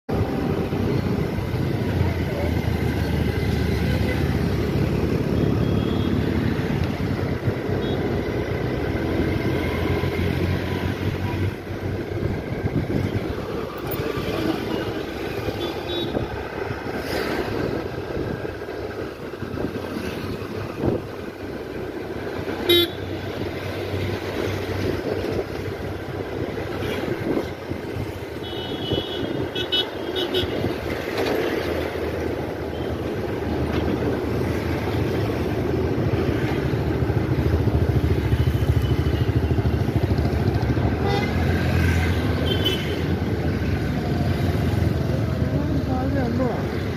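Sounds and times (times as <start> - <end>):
engine and tyre noise: 0.1 - 46.9
vehicle horns tooting: 22.6 - 23.2, 28.4 - 30.6, 41.0 - 41.5.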